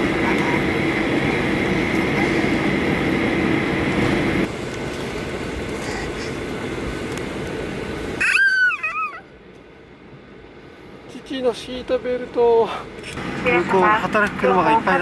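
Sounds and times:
low engine hum: 0.0 - 8.2
jet engines rushing: 0.0 - 11.2, 12.8 - 15.0
high engine whine: 0.0 - 15.0.

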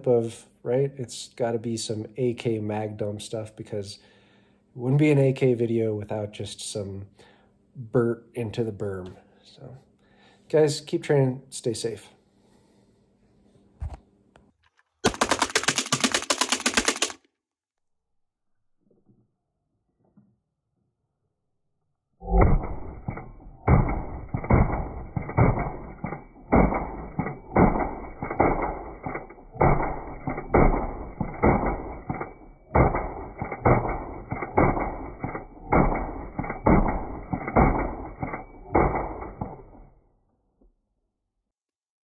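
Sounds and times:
rapid pistol shots: 15.0 - 17.2, 22.4 - 39.8.

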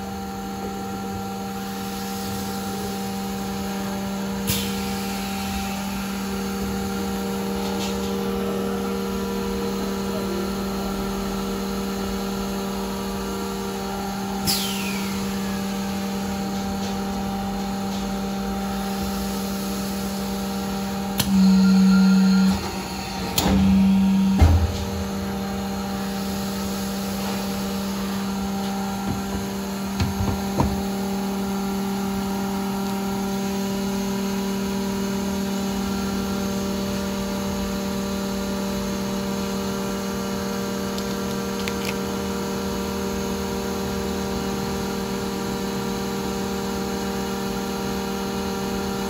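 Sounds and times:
loud welding buzz: 0.0 - 49.0
welding machine electrical hum: 0.0 - 49.0
air release hiss: 14.4 - 15.4.

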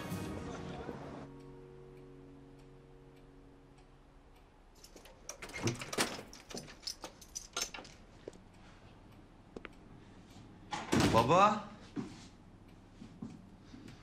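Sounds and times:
keys rattling in door lock: 4.8 - 8.1
door being opened: 4.9 - 8.0.

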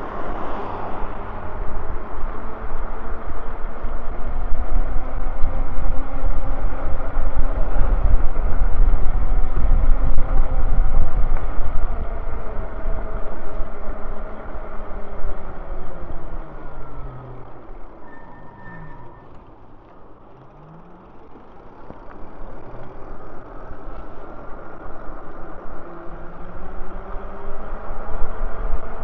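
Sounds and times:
wind buffeting microphone: 0.0 - 18.0
e-bike road noise: 0.0 - 29.0.

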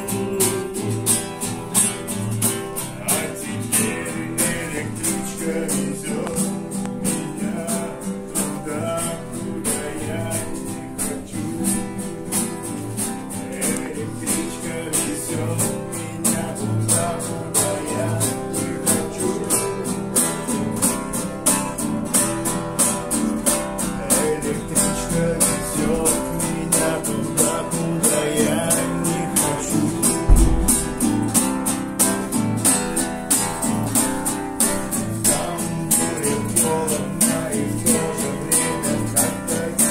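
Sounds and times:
man singing: 0.0 - 21.0, 23.8 - 39.9
acoustic guitars strummed: 0.0 - 39.9
low bump: 30.1 - 31.6.

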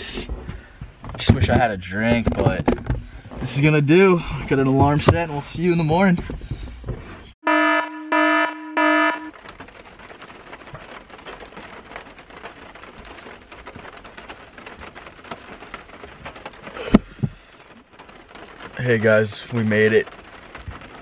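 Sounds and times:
rain pattering on car roof: 0.0 - 7.2, 8.3 - 21.0
alarm beeps: 7.4 - 9.3.

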